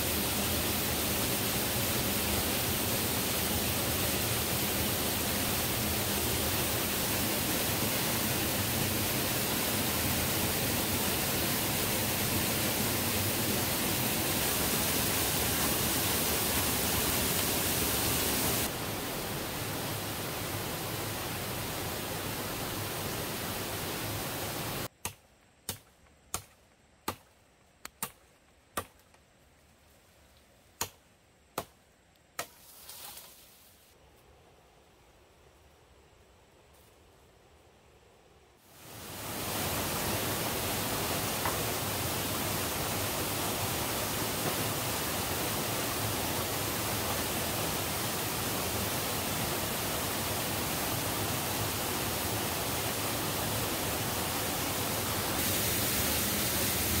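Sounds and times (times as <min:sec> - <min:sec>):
waterfall rushing: 0:00.0 - 0:24.9, 0:38.8 - 0:57.0.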